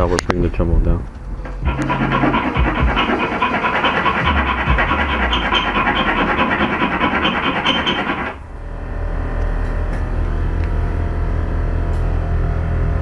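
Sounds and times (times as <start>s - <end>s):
music: 1.3s - 8.3s
hand file rasping on steel: 1.4s - 8.4s.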